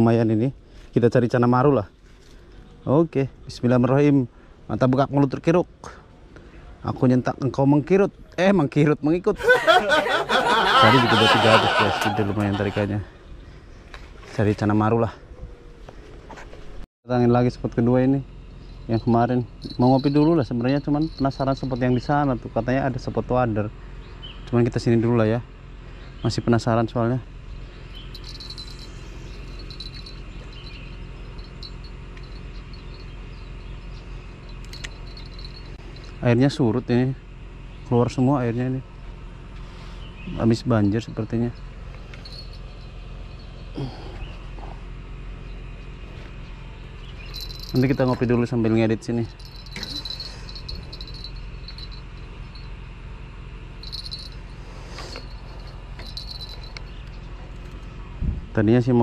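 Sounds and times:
low steady hum: 0.0s - 59.0s
insects chirring: 17.9s - 24.7s, 25.7s - 36.4s, 38.8s - 58.1s.

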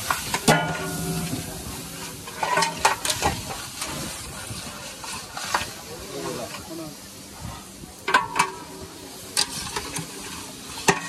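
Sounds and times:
ladle clanking against pot: 0.0s - 3.9s, 8.1s - 8.8s
frying hiss: 0.0s - 11.0s
steel plate knocking on pot: 0.4s - 3.4s.

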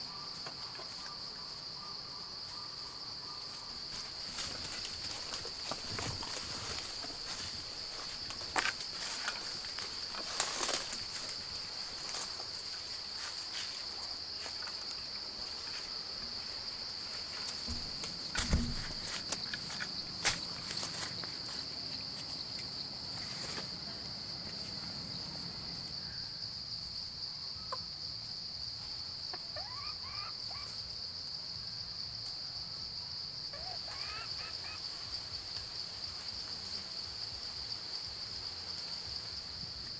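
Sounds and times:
insect drone: 0.0s - 39.9s
footsteps on dirt path: 3.4s - 23.8s.

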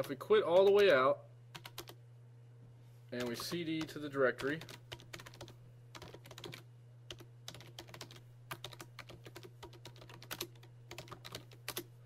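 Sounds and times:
steady low hum: 0.0s - 12.0s
computer keyboard keys clicking: 1.6s - 2.0s, 3.2s - 11.9s.

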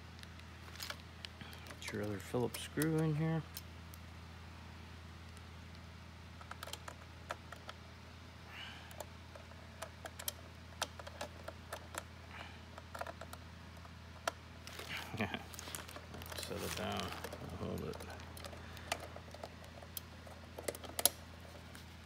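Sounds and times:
low hum: 0.0s - 22.0s
screwdriver clicking on plastic: 8.9s - 12.1s, 17.1s - 21.2s.

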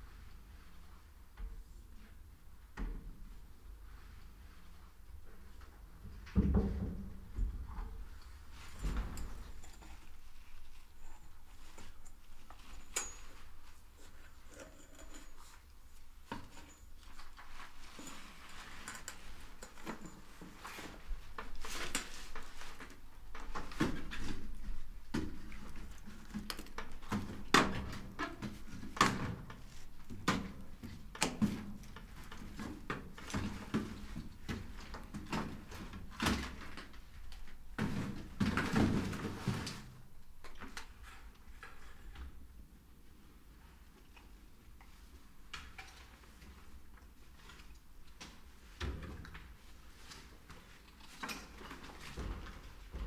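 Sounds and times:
rustling: 7.1s - 40.1s.

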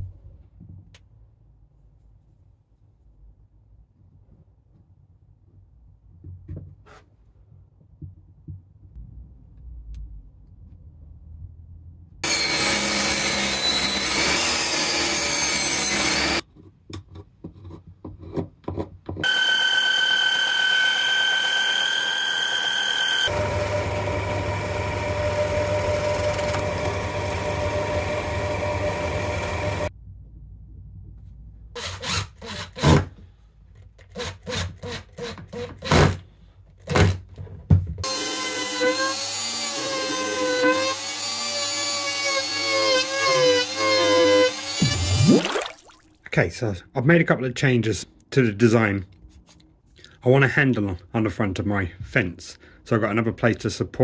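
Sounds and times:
loud cutting or sanding on wood: 12.2s - 16.4s, 19.2s - 29.9s, 38.0s - 45.5s
belt sander whining: 19.2s - 29.9s.

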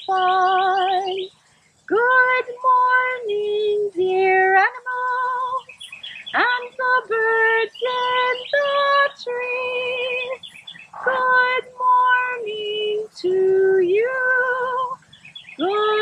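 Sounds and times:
woman singing with vibrato: 0.0s - 1.3s, 1.9s - 16.0s.

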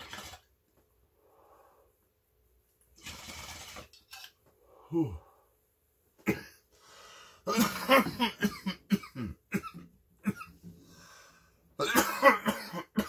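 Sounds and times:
man coughing: 6.2s - 6.7s, 7.5s - 10.6s, 11.8s - 13.0s.

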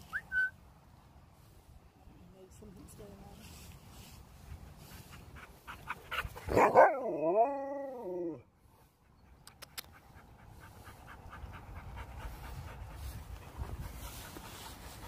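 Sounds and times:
dog panting: 4.8s - 6.5s, 8.7s - 15.0s.

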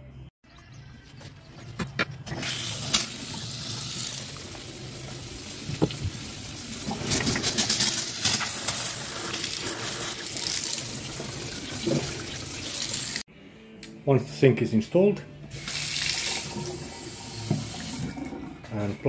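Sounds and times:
tap water running into sink: 2.3s - 13.2s, 15.5s - 18.4s.

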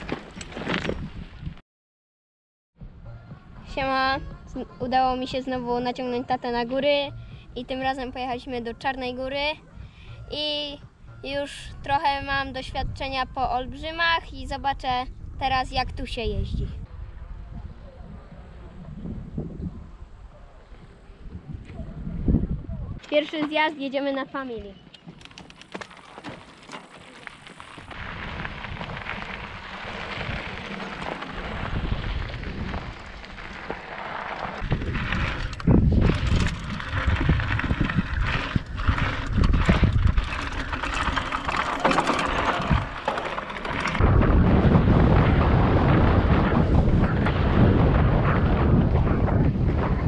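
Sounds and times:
bike rattles and knocks: 0.0s - 1.4s, 25.0s - 45.9s
wind rumbling on microphone: 0.0s - 1.6s, 2.8s - 23.2s, 26.6s - 50.0s
tyres crunching on gravel: 25.0s - 44.1s.

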